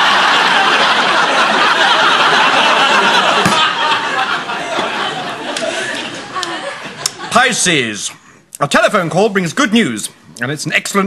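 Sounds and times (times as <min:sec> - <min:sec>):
studio audience laughing: 0:00.0 - 0:07.6.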